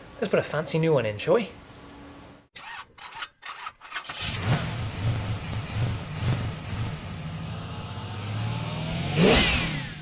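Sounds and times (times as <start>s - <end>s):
car engine starting and idling: 3.5s - 9.2s.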